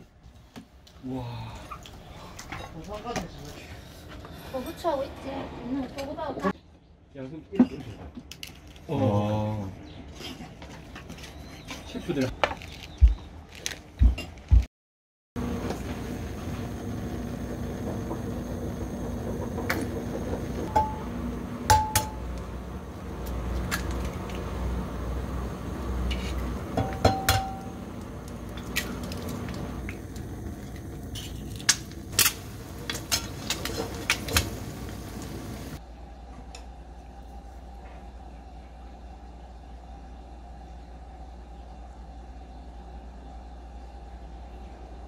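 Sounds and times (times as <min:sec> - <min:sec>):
steady background hum: 0:15.4 - 0:45.0
utensils knocking on metal pan: 0:20.7 - 0:21.0, 0:21.7 - 0:22.2, 0:26.8 - 0:27.7.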